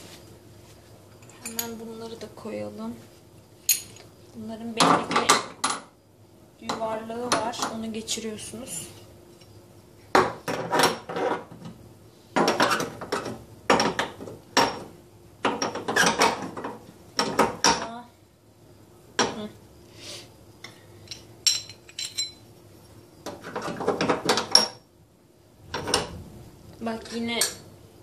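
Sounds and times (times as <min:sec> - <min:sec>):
metal burner parts clinking: 0:21.0 - 0:22.4.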